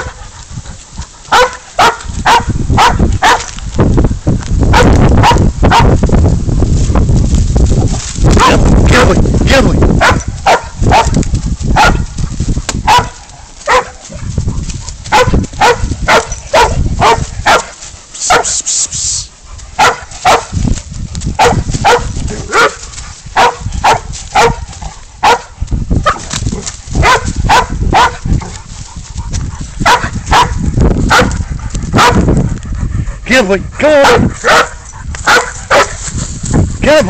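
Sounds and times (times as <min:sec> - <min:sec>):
dog barking: 0:00.0 - 0:00.2, 0:01.3 - 0:03.5, 0:04.7 - 0:06.0, 0:08.4 - 0:09.2, 0:10.0 - 0:12.2, 0:12.8 - 0:14.3, 0:15.1 - 0:18.6, 0:19.8 - 0:20.6, 0:21.4 - 0:22.8, 0:23.4 - 0:26.3, 0:27.0 - 0:28.3, 0:29.8 - 0:31.4, 0:32.0 - 0:32.3, 0:33.9 - 0:36.0.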